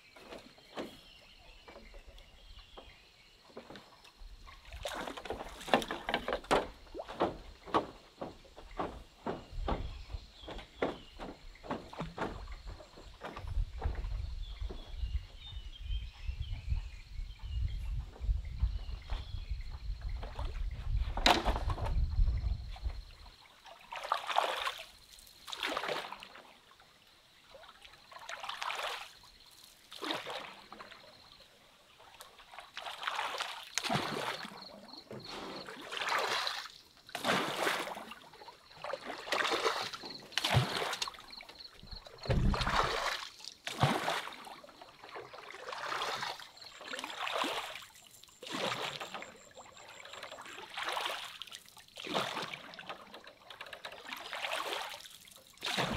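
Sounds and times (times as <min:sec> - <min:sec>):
water splashing in strokes: 0:03.6 - 0:14.8, 0:23.5 - 0:26.8, 0:27.5 - 0:31.3, 0:31.9 - 0:55.9.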